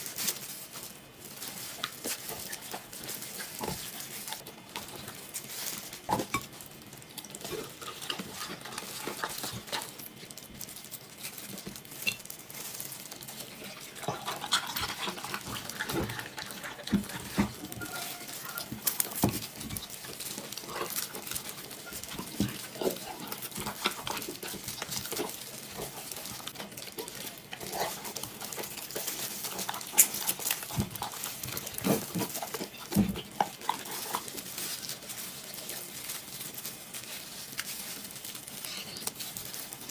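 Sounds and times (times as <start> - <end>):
dog wet chewing and smacking: 12.6 - 39.9.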